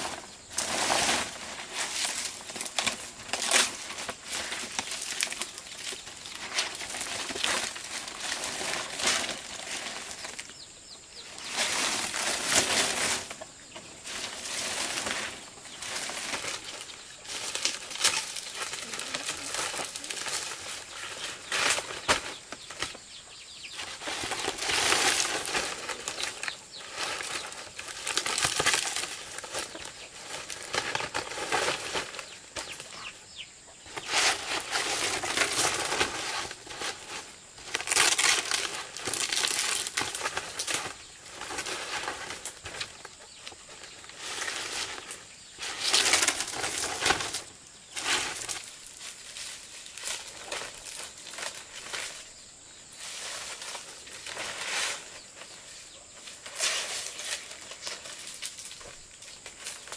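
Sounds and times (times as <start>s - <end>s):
palm leaves rustling and swishing: 0.0s - 59.9s.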